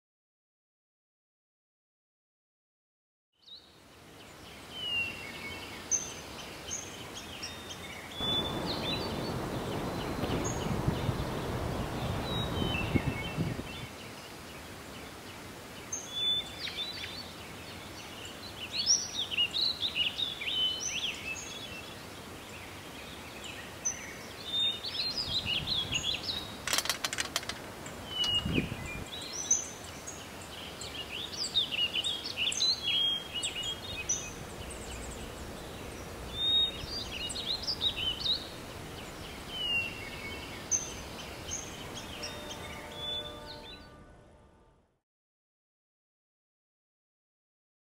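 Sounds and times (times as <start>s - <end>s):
songbirds chirping: 3.4s - 44.7s
city ambience: 8.2s - 13.1s, 33.2s - 44.6s
low rushing noise: 8.2s - 13.8s, 33.7s - 42.1s
clatter of clicks: 26.6s - 28.4s.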